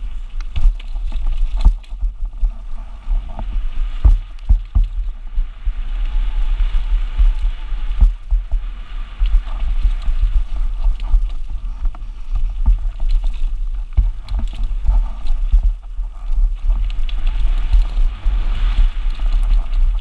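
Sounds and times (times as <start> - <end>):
bike knocking and rattling: 0.0 - 20.0
wind rumble on camera: 0.0 - 20.0.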